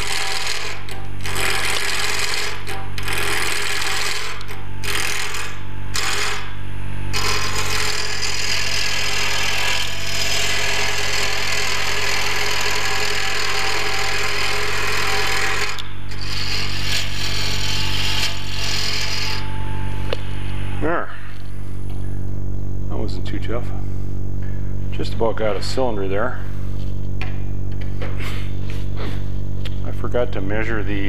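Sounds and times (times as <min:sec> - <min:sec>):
lathe motor hum: 0:00.0 - 0:06.5, 0:07.1 - 0:20.1.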